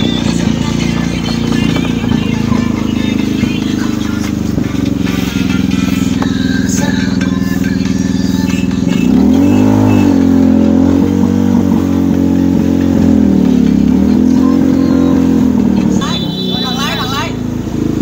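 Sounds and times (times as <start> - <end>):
car engine revving past: 8.9 - 16.0.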